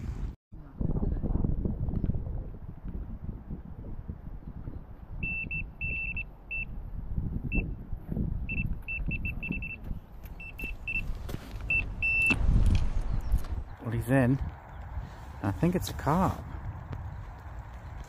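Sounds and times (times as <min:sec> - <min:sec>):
electronic bite alarm beeping: 0:05.2 - 0:06.8, 0:08.5 - 0:09.8, 0:10.4 - 0:11.1, 0:11.7 - 0:12.4.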